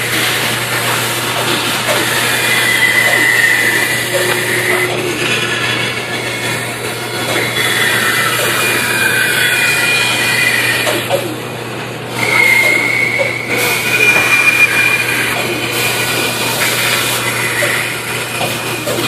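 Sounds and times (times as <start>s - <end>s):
band saw cutting wood: 0.0s - 19.0s
saw motor hum: 0.0s - 19.0s.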